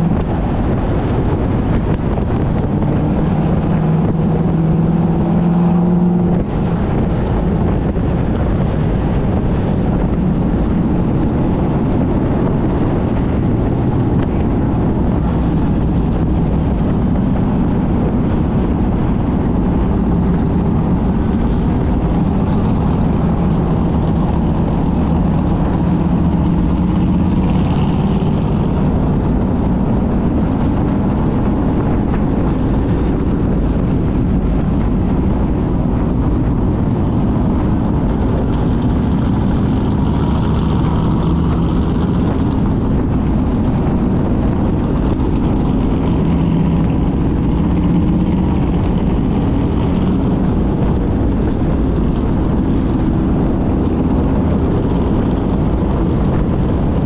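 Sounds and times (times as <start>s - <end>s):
race car engine running: 0.0s - 57.0s
surrounding car engines: 0.0s - 57.0s
wind buffeting microphone: 0.0s - 57.0s.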